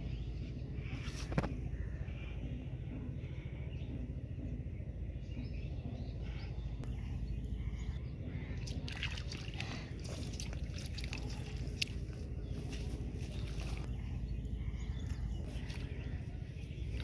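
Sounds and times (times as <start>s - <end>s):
hands splashing in muddy water: 8.6s - 13.8s.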